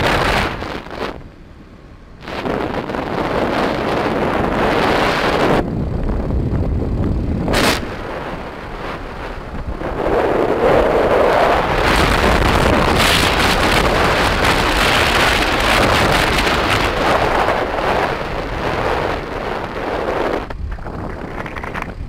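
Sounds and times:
wind roaring over microphone: 0:00.0 - 0:22.0.

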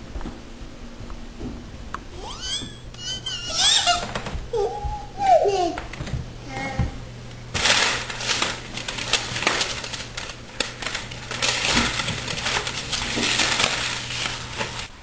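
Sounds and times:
plastic blind slats clattering: 0:07.6 - 0:14.9.

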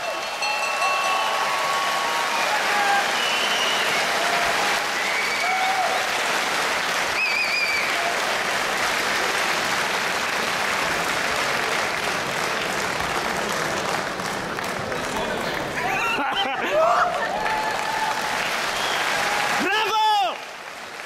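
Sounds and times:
crowd applauding and cheering: 0:00.0 - 0:21.0
wavering whistle: 0:03.1 - 0:04.2.

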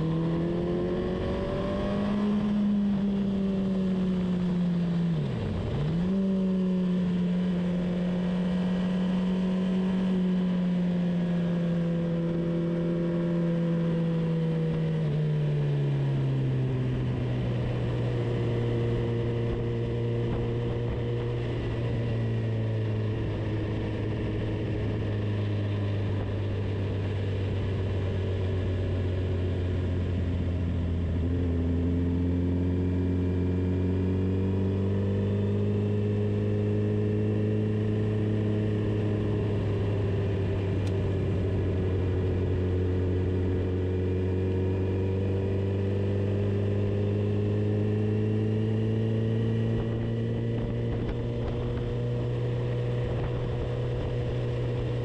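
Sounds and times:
vehicle engine droning: 0:00.0 - 0:55.0.

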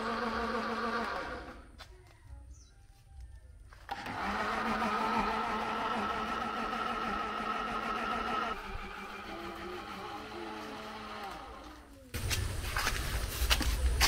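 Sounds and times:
blender motor whine: 0:00.0 - 0:01.8, 0:03.8 - 0:12.0.

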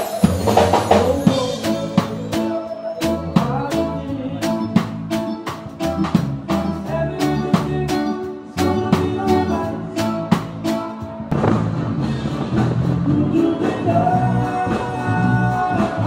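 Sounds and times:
electronic keyboard: 0:00.0 - 0:11.5
bass: 0:00.0 - 0:16.0
drum kit beat: 0:00.0 - 0:16.0.

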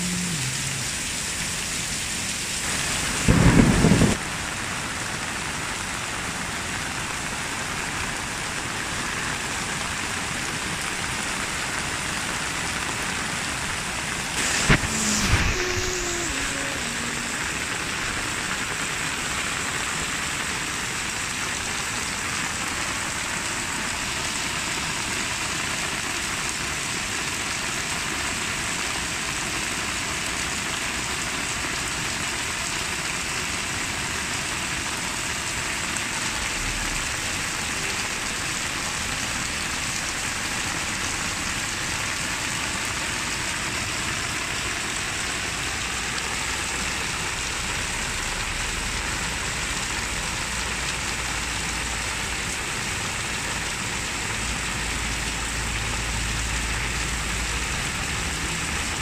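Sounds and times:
heavy rain splashing into water: 0:00.0 - 0:59.0.

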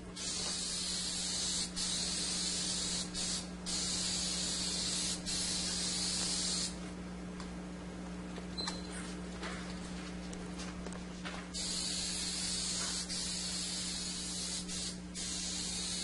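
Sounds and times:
aerosol spray hissing: 0:00.2 - 0:06.8, 0:11.6 - 0:16.0.

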